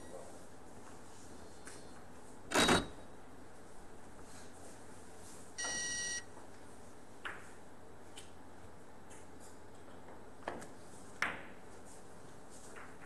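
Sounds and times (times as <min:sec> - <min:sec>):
electronic beep: 0:05.6 - 0:06.2.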